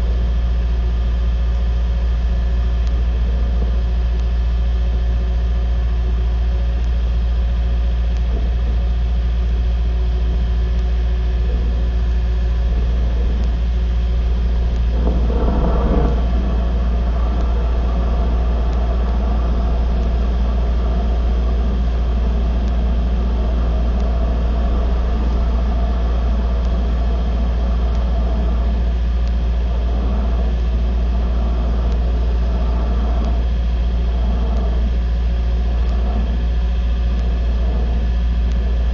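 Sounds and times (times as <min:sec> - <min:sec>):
low engine hum: 0:00.0 - 0:38.9.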